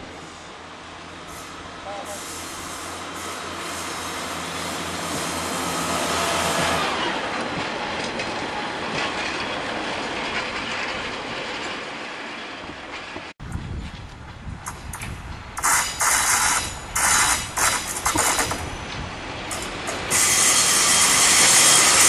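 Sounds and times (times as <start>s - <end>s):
diesel engine humming: 0.0s - 11.3s
train wheels clacking on rails: 2.8s - 13.3s, 14.6s - 22.0s.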